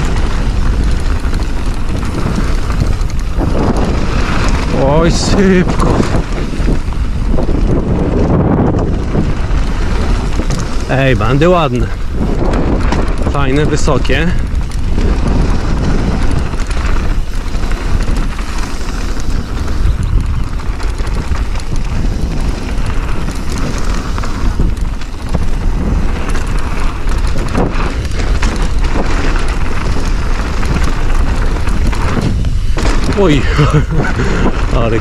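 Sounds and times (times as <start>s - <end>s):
bike clattering over bumps: 0.0s - 35.0s
tyres on dirt: 0.0s - 35.0s
wind rumbling on microphone: 0.0s - 35.0s.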